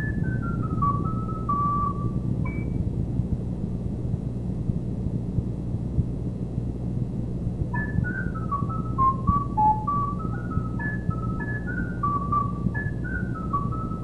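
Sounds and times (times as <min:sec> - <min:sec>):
recorder playing descending runs: 0:00.0 - 0:02.8, 0:07.7 - 0:14.0
low hum and hiss: 0:00.0 - 0:14.0.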